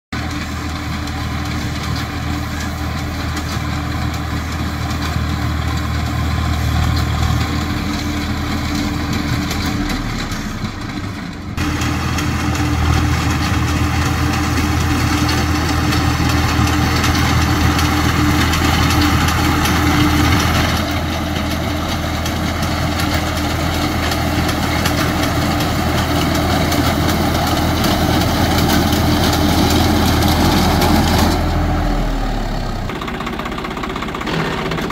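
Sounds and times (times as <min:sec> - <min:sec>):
tractor diesel engine running: 0:00.1 - 0:34.9
reaper binder cutting wheat: 0:11.6 - 0:31.7.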